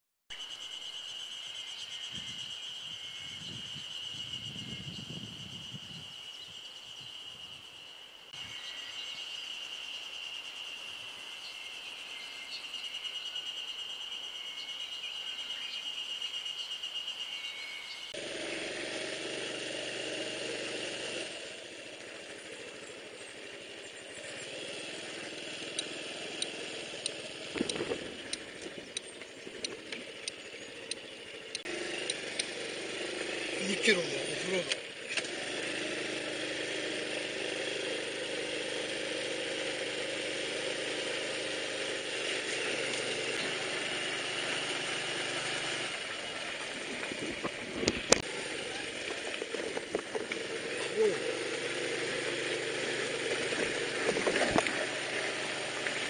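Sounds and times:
high insect trill: 0.3s - 35.0s
birdsong: 0.3s - 56.0s
wind noise: 2.1s - 6.6s, 27.5s - 29.8s, 46.7s - 48.2s
motorcycle engine running: 2.1s - 7.6s, 17.4s - 56.0s
sharp clicks and rattles: 25.6s - 32.6s, 46.5s - 48.3s, 48.9s - 50.7s, 53.3s - 54.9s.

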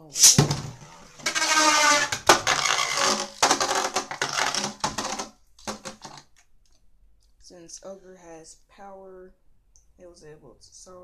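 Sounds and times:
spinning top grinding on plastic: 1.1s - 5.8s.

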